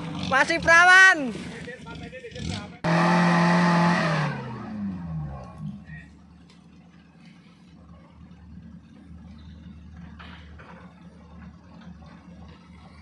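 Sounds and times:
car engine revving down to idle: 0:02.3 - 0:06.0.

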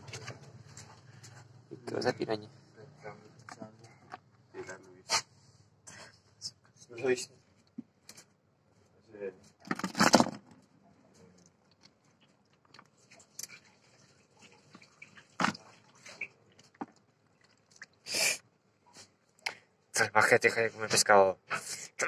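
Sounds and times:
wet fish and ice shifting: 0:11.4 - 0:18.1.

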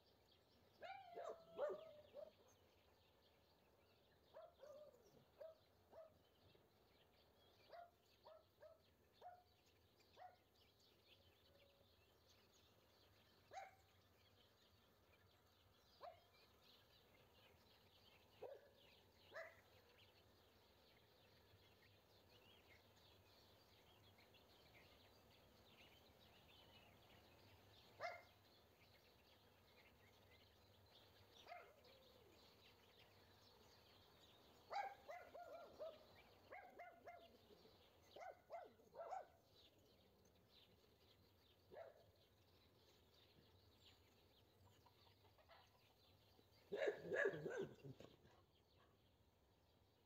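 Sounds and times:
small birds chirping: 0:00.0 - 0:50.0
dog barking and yipping: 0:00.8 - 0:02.3, 0:28.0 - 0:28.2, 0:34.7 - 0:37.3, 0:38.2 - 0:39.3, 0:46.7 - 0:48.0.

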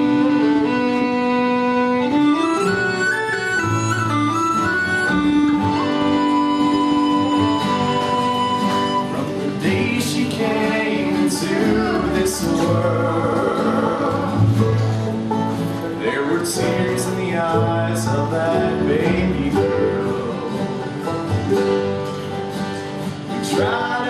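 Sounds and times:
acoustic guitar: 0:00.0 - 0:24.0
fiddle: 0:00.0 - 0:24.0
harmonica: 0:00.0 - 0:24.0
upright bass: 0:00.0 - 0:24.0
person singing: 0:09.0 - 0:15.0, 0:15.9 - 0:21.1, 0:23.4 - 0:24.0.

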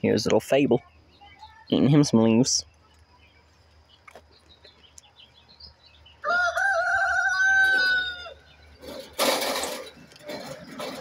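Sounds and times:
rooster crowing: 0:06.2 - 0:08.5.

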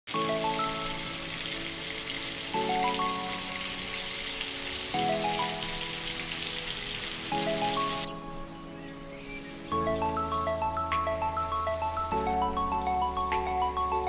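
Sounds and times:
background music: 0:00.1 - 0:14.0
fish sizzling in oil: 0:00.2 - 0:10.4.

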